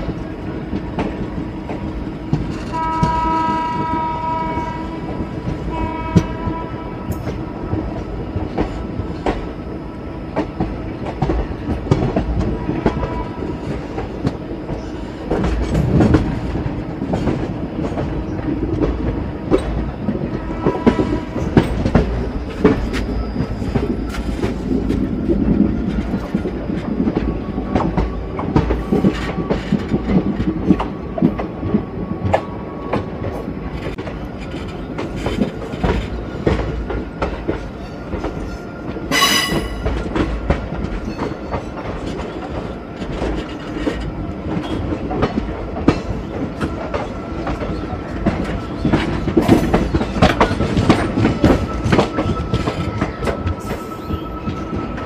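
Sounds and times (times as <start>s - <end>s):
train rumble: 0.0s - 55.0s
train horn: 2.6s - 7.4s, 12.6s - 13.8s, 20.2s - 21.6s, 39.1s - 39.9s.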